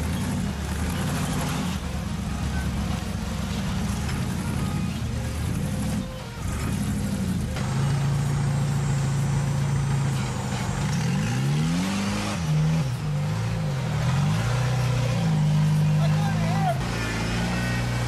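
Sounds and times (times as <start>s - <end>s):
off-road engine revving: 0.0s - 18.0s.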